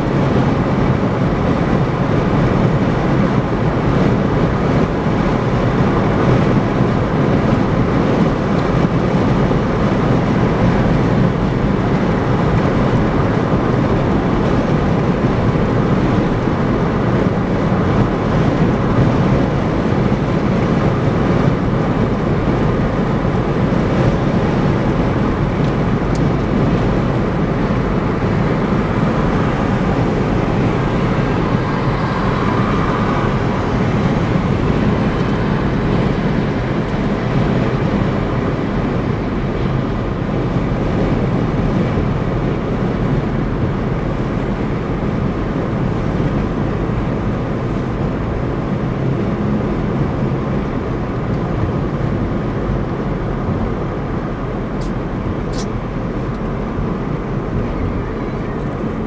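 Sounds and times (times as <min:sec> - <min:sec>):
car tyre and wind noise: 0:00.0 - 0:59.0.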